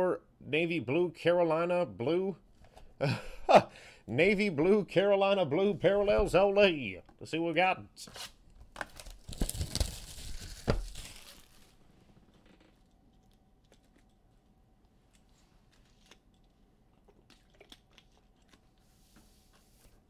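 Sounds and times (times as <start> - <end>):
plastic wrapping tearing: 8.2 - 11.8.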